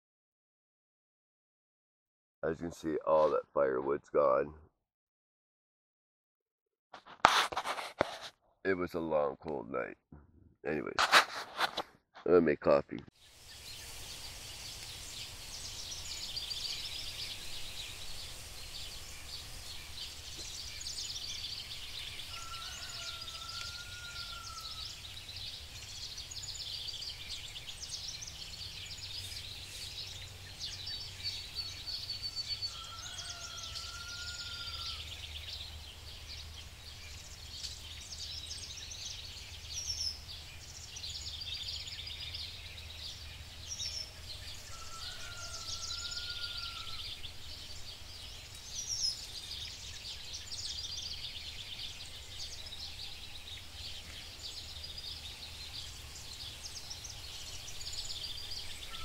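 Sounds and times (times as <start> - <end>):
high crackly hiss: 13.1 - 32.3, 34.4 - 59.0
bird chirps and trill: 13.2 - 59.0.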